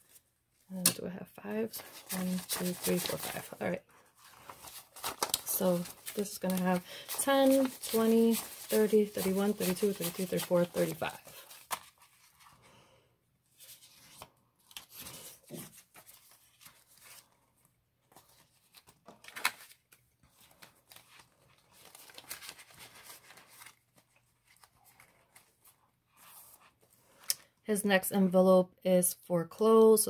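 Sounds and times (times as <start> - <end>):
paper banknotes rustling: 1.7 - 12.6, 18.1 - 27.2
plastic pocket crinkling: 4.2 - 12.3.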